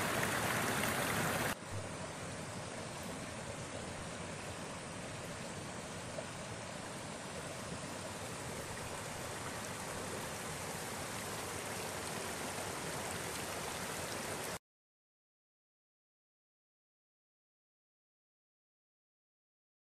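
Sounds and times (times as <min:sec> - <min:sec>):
stream rushing: 0:00.0 - 0:14.6.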